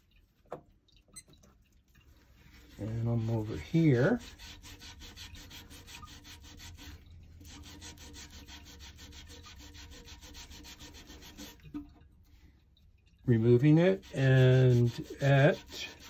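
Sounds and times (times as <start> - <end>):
gloved hand scrubbing porcelain: 2.0 - 11.8, 13.2 - 16.0.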